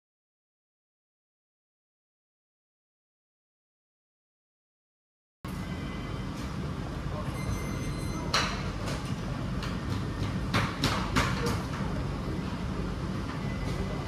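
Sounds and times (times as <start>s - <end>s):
restaurant room rumble: 5.5s - 14.0s.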